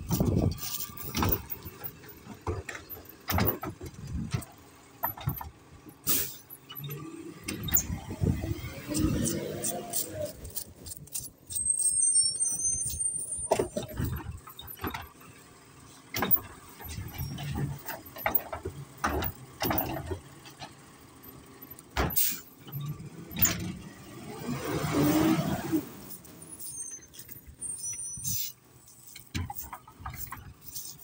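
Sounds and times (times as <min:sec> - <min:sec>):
metal clanks and knocks: 0:00.0 - 0:11.4, 0:13.5 - 0:15.4, 0:16.1 - 0:22.5, 0:28.9 - 0:31.0
garbage truck running: 0:00.0 - 0:31.0
high squeal: 0:11.5 - 0:13.6, 0:26.5 - 0:28.6.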